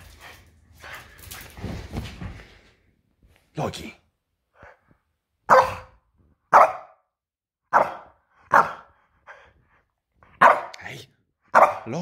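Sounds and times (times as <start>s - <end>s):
dog barking: 5.5s - 7.0s, 7.7s - 8.9s, 10.4s - 10.8s, 11.5s - 11.9s.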